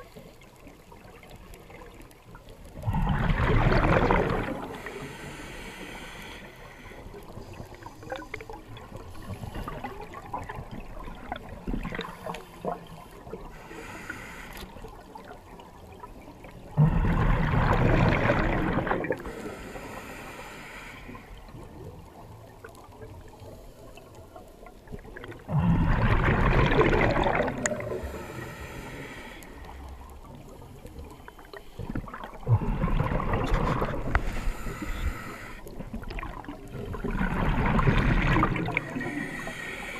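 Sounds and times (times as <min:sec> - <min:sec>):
faint crackling background: 0:00.0 - 0:39.9
water rushing surge: 0:25.7 - 0:28.8.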